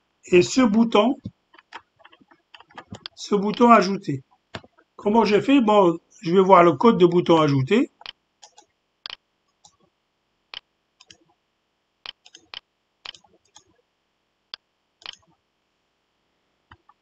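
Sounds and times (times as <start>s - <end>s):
faint computer mouse clicks: 12.0s - 13.7s, 14.5s - 15.3s.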